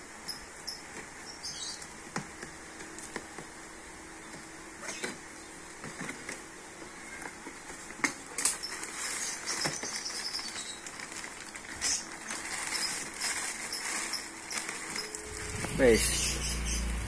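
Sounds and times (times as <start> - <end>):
plastic wrapping crinkling: 7.4 - 16.0.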